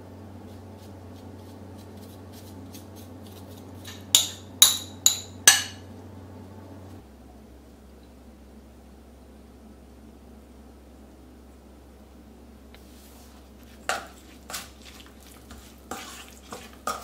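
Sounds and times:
spoon knocking against bowl: 3.8 - 5.8.

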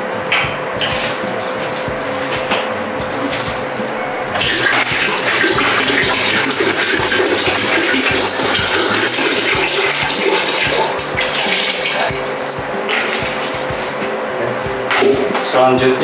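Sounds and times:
water pouring into tank: 4.4 - 13.8.

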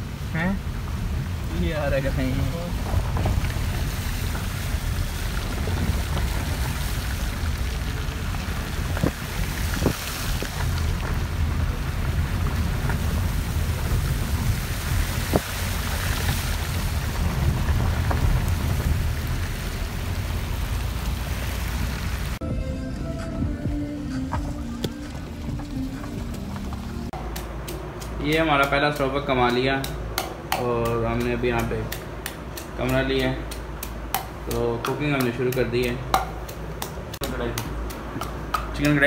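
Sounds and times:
wind buffeting microphone: 0.7 - 22.4.

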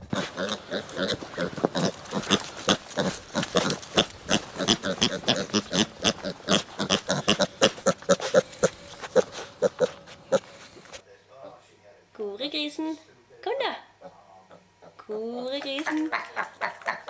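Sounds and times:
piglets grunting and squealing: 0.0 - 11.0.

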